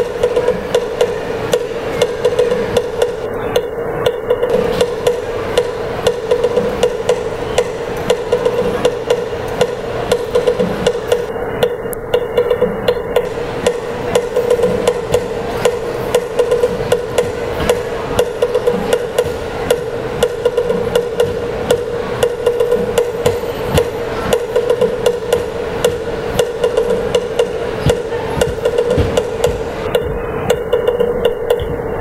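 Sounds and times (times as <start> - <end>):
sharp percussion knocks: 0.0 - 32.0.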